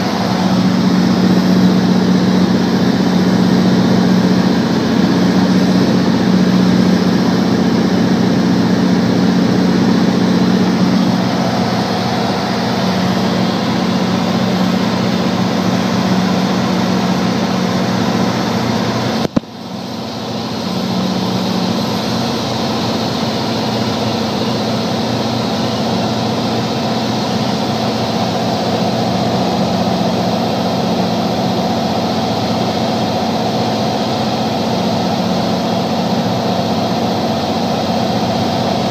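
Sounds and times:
aircraft engine and propeller droning: 0.0s - 38.9s
click: 19.2s - 19.5s.

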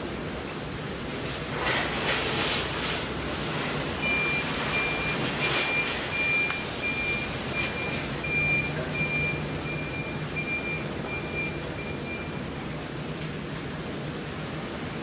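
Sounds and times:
electronic warning beeps: 4.0s - 12.5s.

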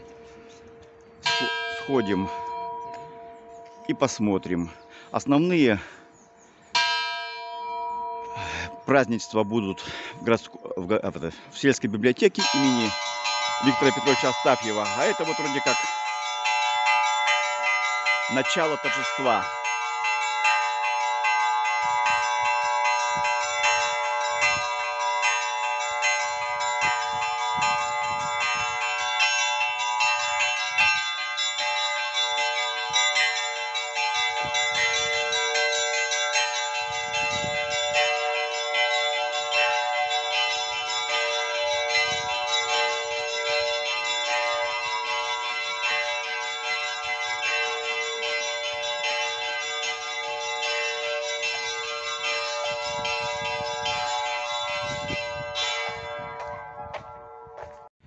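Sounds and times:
church bells pealing: 0.0s - 57.9s.

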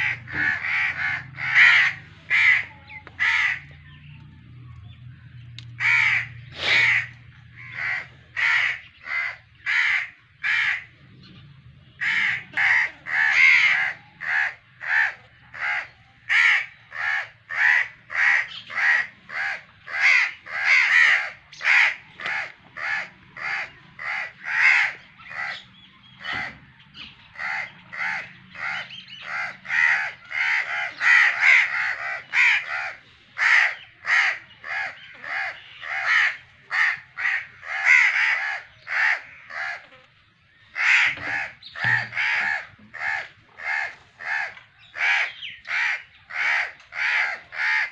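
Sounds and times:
birds calling: 0.0s - 47.9s.

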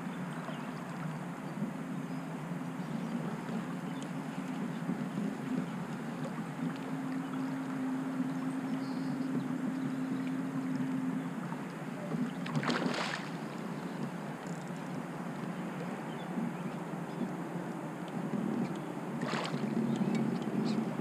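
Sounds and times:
water noise: 0.0s - 21.0s
fish splashing: 12.5s - 13.4s.

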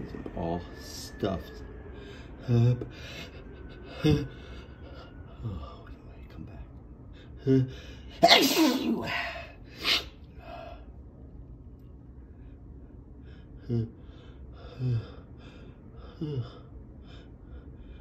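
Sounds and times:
person sneezing: 8.1s - 10.2s.

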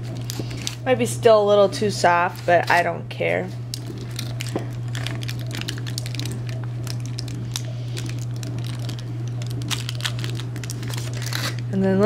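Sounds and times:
steady low hum: 0.0s - 12.0s
soft squishing: 3.6s - 11.6s
knife scraping foil: 4.0s - 11.6s.

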